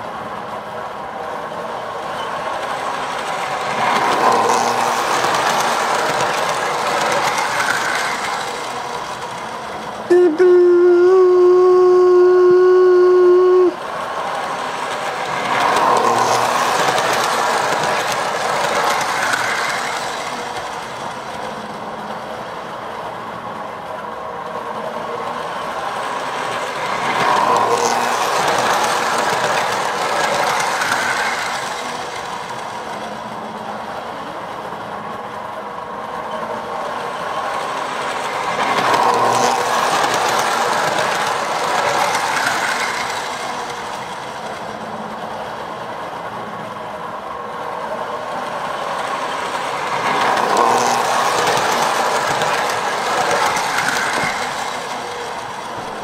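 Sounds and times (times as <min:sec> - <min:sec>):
train wheels rattling on rails: 0:00.0 - 0:10.1, 0:13.8 - 0:56.0
toy train motor humming: 0:03.2 - 0:20.8, 0:25.8 - 0:32.6, 0:37.2 - 0:44.2, 0:48.8 - 0:55.9.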